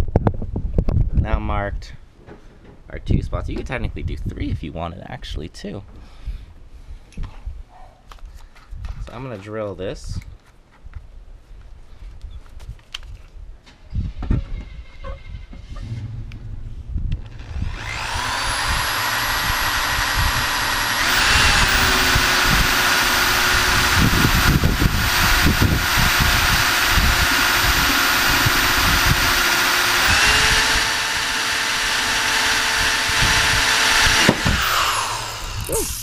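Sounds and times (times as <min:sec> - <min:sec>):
drill bit rumbling in metal: 0:15.6 - 0:36.0
cordless drill motor whining: 0:17.2 - 0:36.0.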